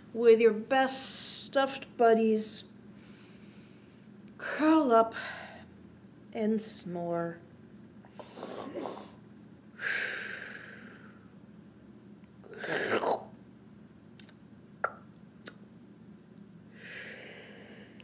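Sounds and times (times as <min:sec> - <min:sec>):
woman pretend snoring: 0:08.2 - 0:09.2.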